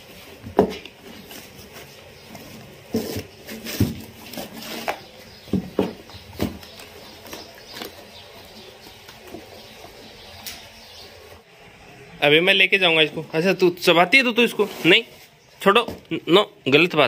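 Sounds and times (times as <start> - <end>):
puppy chewing cardboard and plastic: 0.7 - 10.1.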